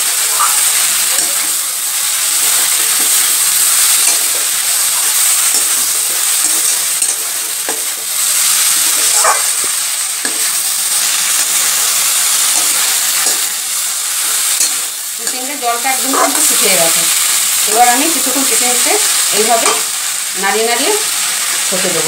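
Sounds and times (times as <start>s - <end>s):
vegetables sizzling in oil: 0.0s - 22.0s
spatula clinking against pan: 5.4s - 7.9s, 14.5s - 15.5s.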